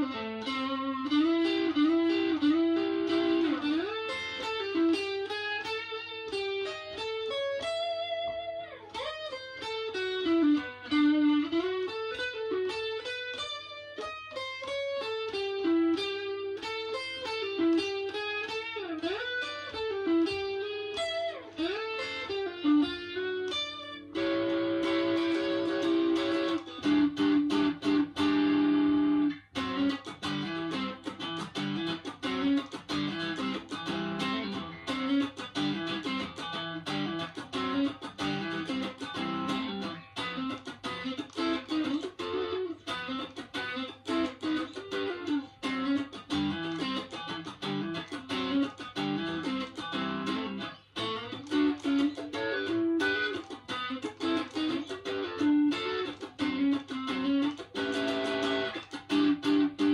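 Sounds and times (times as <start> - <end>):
electric guitar playing: 0.0 - 59.9.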